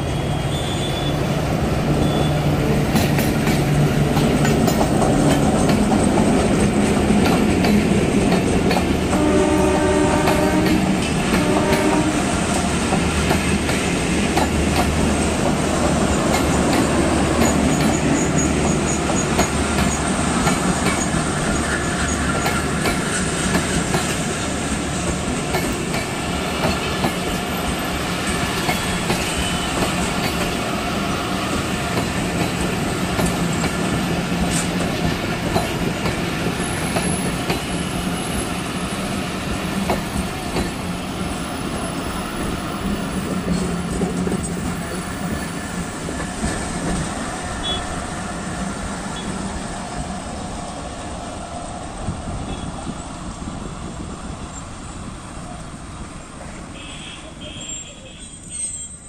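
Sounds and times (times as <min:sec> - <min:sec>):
train wheels clattering over rail joints: 0:02.8 - 0:47.6.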